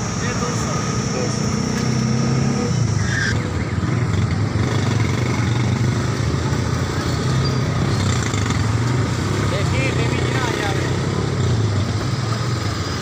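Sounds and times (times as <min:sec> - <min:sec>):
rush of street noise: 0:00.0 - 0:13.0
traffic engine drone: 0:00.0 - 0:13.0.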